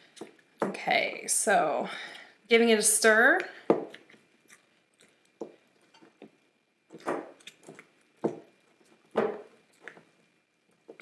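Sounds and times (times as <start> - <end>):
spatula stirring sticky dough: 3.4 - 11.0.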